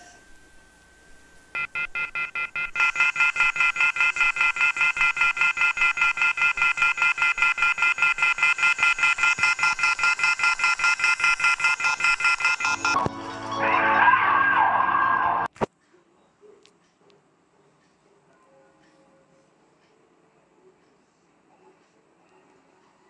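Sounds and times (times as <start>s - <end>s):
telephone off-hook warning tone: 1.6s - 13.0s.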